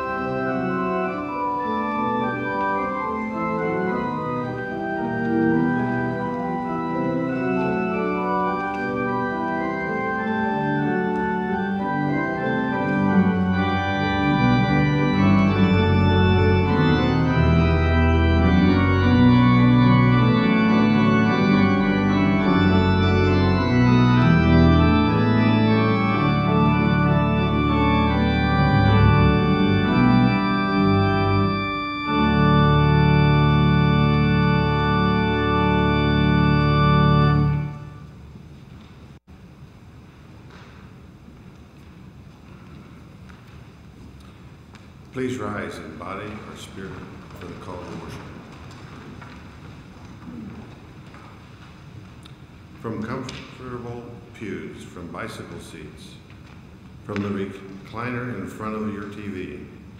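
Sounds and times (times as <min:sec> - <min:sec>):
deep organ pedal bass notes: 0:00.0 - 0:38.1
church organ chords: 0:00.0 - 0:38.4, 0:52.8 - 0:56.2, 0:57.0 - 0:59.9.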